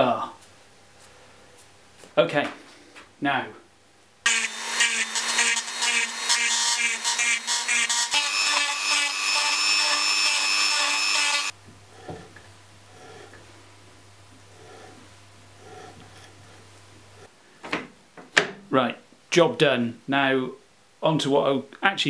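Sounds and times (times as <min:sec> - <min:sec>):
rotary tool grinding metal: 0:04.3 - 0:11.5.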